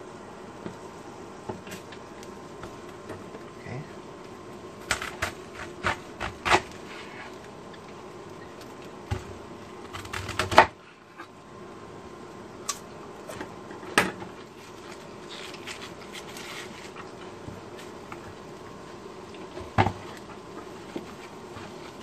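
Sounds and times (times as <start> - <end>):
knife slicing cabbage: 4.8 - 7.3
cabbage leaves rustling: 14.5 - 17.2.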